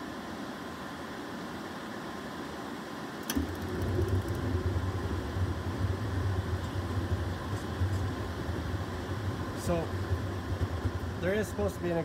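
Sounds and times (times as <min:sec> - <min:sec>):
furnace blower whoosh: 0:03.2 - 0:12.0
burner low rumble: 0:03.3 - 0:12.0.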